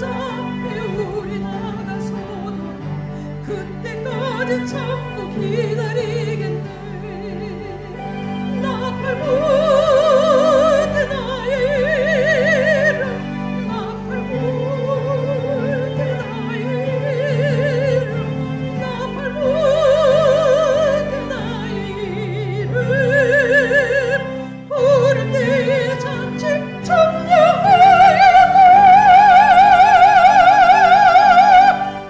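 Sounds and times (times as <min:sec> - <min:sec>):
instrumental accompaniment: 0:00.0 - 0:32.0
soprano singing with vibrato: 0:00.0 - 0:32.0.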